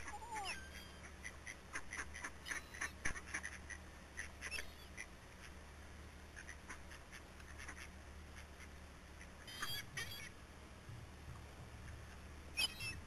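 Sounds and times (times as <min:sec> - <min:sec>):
ducks quacking: 0:00.0 - 0:05.6, 0:06.3 - 0:10.4.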